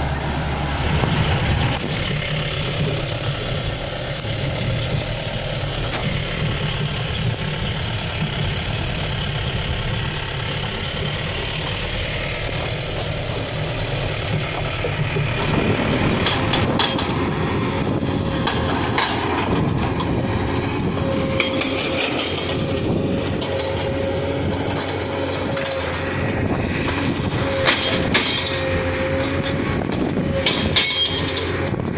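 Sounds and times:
excavator running with whine: 0:00.0 - 0:31.9
vehicle engine on rough track: 0:00.0 - 0:31.9
clanks and knocks: 0:14.2 - 0:17.4, 0:18.2 - 0:20.3, 0:21.2 - 0:26.0, 0:26.8 - 0:31.7.

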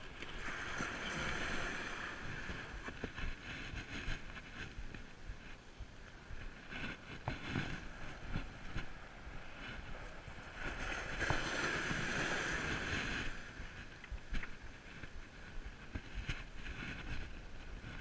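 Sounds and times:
rush of water: 0:00.0 - 0:03.8
paddle strokes splashing water: 0:00.0 - 0:04.6, 0:09.6 - 0:15.0.

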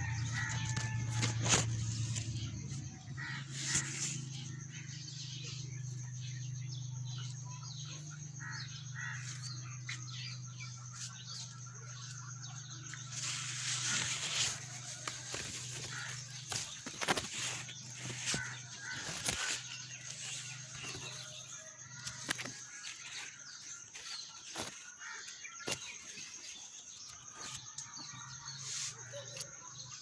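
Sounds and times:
leaves rustling against phone: 0:13.1 - 0:26.4.

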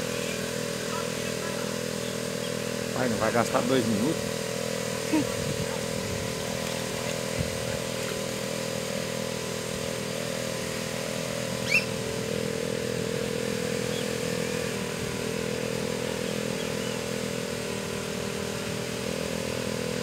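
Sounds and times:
boat motor running: 0:00.0 - 0:20.0
water pumping through hose: 0:00.0 - 0:20.0
high chirp: 0:11.6 - 0:12.0.

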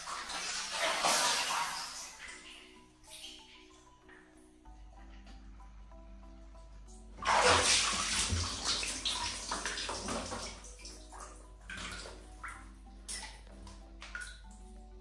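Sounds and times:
water splashing in plastic basin: 0:00.0 - 0:02.4, 0:07.2 - 0:14.4
water dripping: 0:00.0 - 0:05.6, 0:07.2 - 0:15.0.

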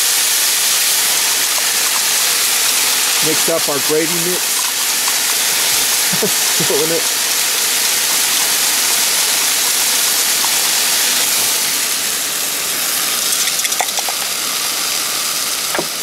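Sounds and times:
meat sizzling in a frying pan: 0:00.0 - 0:16.0
light clicks of pouring: 0:13.2 - 0:14.3.

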